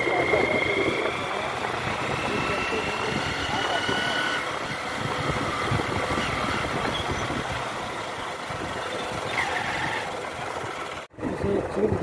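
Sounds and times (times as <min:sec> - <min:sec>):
wind rushing: 0:00.0 - 0:07.8
motorcycle engine running: 0:00.0 - 0:12.0.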